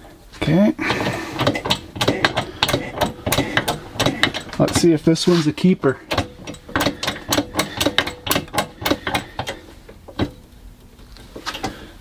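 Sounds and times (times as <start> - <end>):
shop press clicking: 0.8 - 5.0, 6.0 - 10.4.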